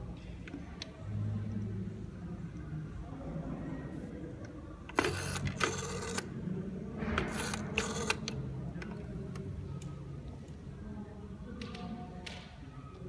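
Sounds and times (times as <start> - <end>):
rotary telephone dial whirring: 4.9 - 6.3, 7.3 - 8.4.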